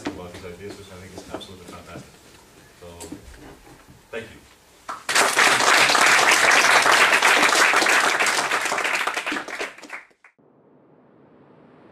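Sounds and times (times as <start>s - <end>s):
audience applauding: 4.9s - 10.4s.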